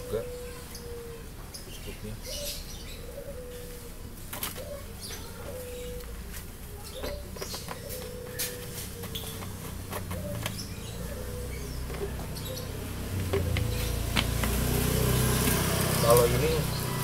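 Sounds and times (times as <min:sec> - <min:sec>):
doves cooing: 0:00.0 - 0:17.0.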